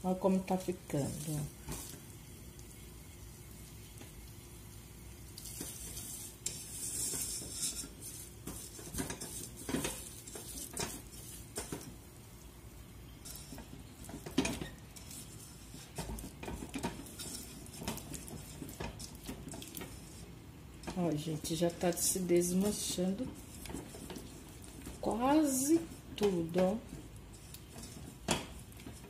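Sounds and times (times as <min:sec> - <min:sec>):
hot sugar hissing: 0:00.0 - 0:29.0
spatula scraping a saucepan: 0:05.4 - 0:11.9, 0:13.2 - 0:29.0.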